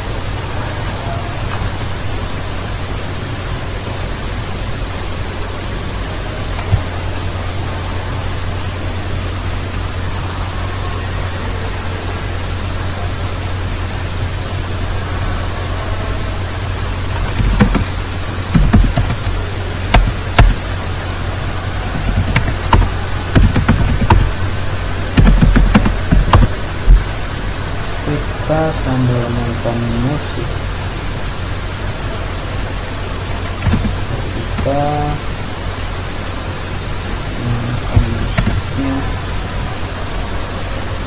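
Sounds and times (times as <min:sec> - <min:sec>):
microphone hiss: 0:00.0 - 0:41.0
computer keyboard clicking: 0:17.2 - 0:18.0, 0:18.6 - 0:20.6, 0:21.9 - 0:24.4, 0:25.2 - 0:27.0, 0:33.3 - 0:34.8, 0:38.0 - 0:38.8.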